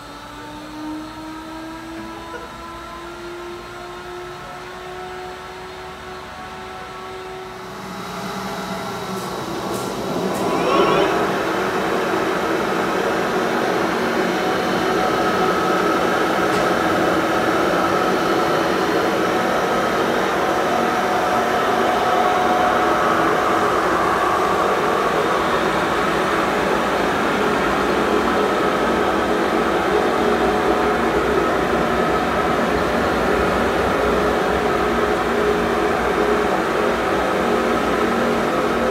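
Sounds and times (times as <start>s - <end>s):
lathe humming and whining: 0.0s - 38.9s
faint held tones: 10.4s - 11.4s.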